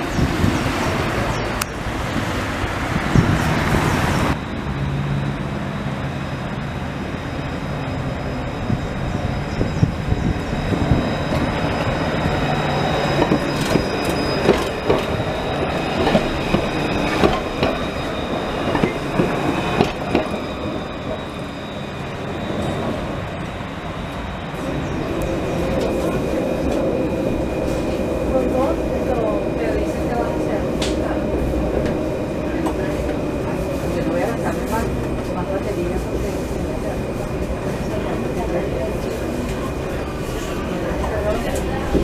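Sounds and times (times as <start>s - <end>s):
tram rumble: 0.0s - 42.0s
tram wheels clicking over rails: 8.6s - 42.0s.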